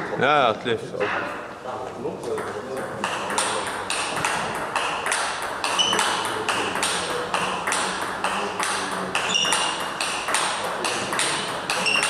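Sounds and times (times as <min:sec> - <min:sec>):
table tennis ball hits: 0:02.4 - 0:12.0.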